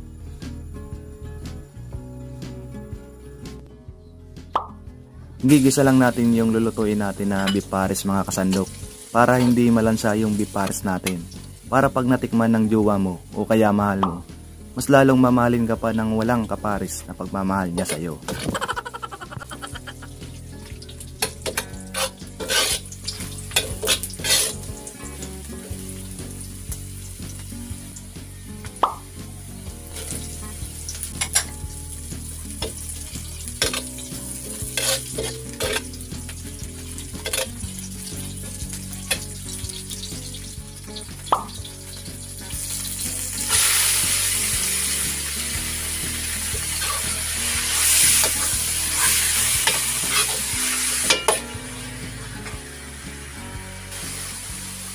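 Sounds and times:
food sizzling in oil: 5.5s - 12.3s, 17.6s - 54.9s
metal ladle scraping wok: 21.2s - 24.7s, 33.6s - 36.0s, 37.2s - 37.6s, 46.7s - 51.6s.

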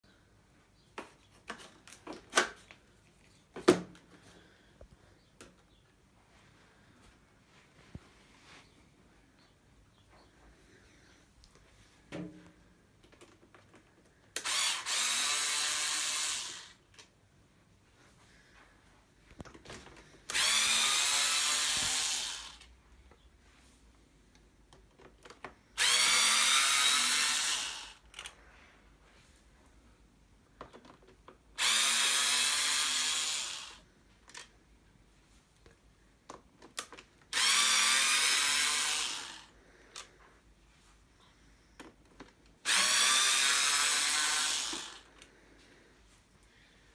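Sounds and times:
power screwdriver whirring: 14.4s - 16.8s, 20.3s - 22.7s, 25.8s - 28.3s, 31.6s - 33.8s, 37.3s - 40.1s, 42.6s - 45.1s.

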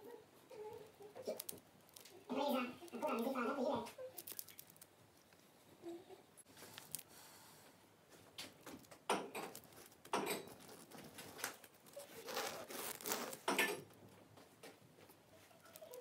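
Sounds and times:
short rustling: 8.1s - 16.0s.

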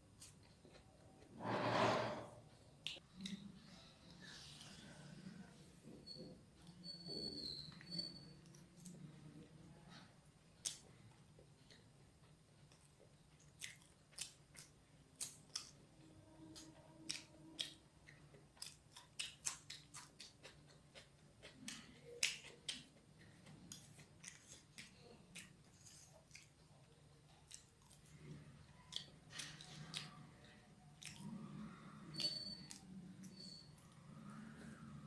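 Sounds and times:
chewing noodles with mouth clicks: 12.6s - 35.0s.

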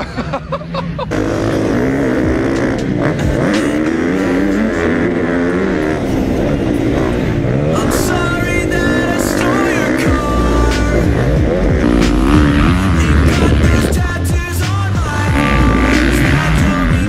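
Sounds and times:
person laughing: 0.0s - 1.5s
motocross bike engine revving: 0.0s - 17.0s
second motocross bike: 0.0s - 17.0s.

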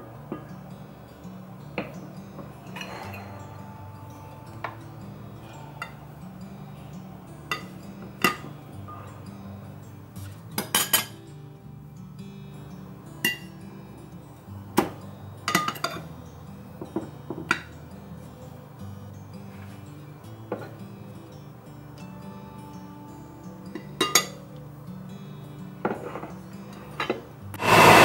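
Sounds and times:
soft background music: 0.0s - 28.0s
cutlery clinking on dishes: 1.8s - 3.6s, 7.5s - 9.2s, 10.6s - 11.2s, 14.8s - 16.1s, 23.7s - 24.5s, 25.8s - 27.3s.

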